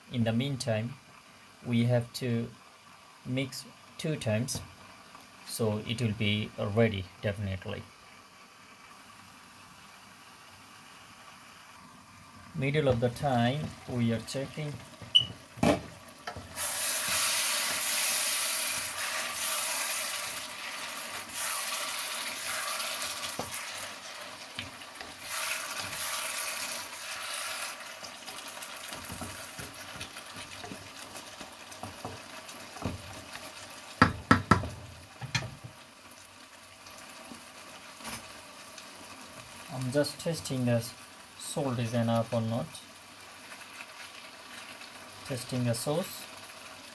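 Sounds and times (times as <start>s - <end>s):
curry sizzling and bubbling in a wok: 0.0s - 46.9s
wooden spatula stirring: 12.8s - 34.8s.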